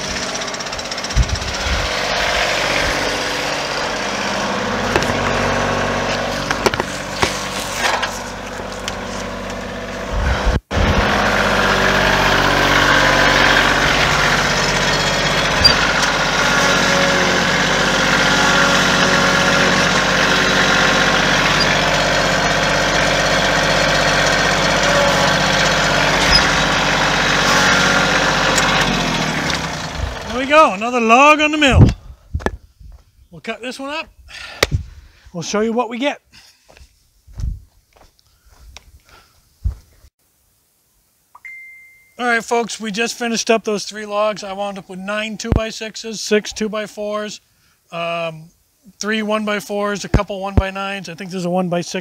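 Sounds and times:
tractor engine running: 0:00.0 - 0:32.6.

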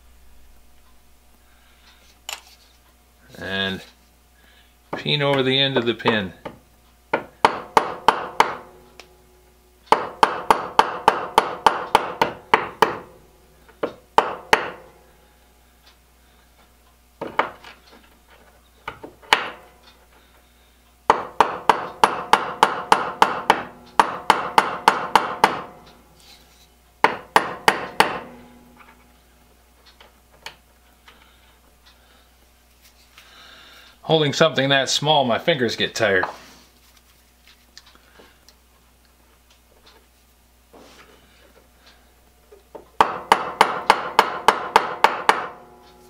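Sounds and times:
hammer tapping metal pin: 0:21.1 - 0:26.0.

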